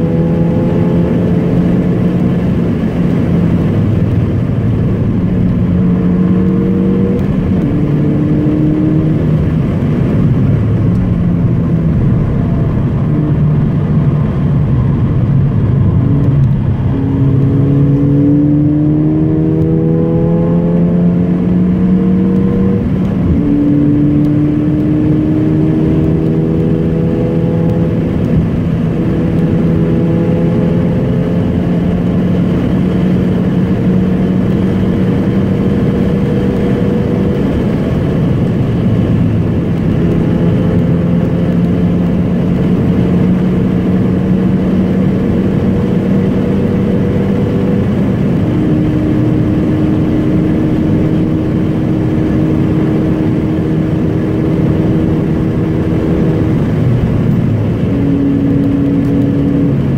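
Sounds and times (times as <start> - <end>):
car engine from inside cabin: 0.0 - 59.9
road and tyre noise: 0.0 - 59.9.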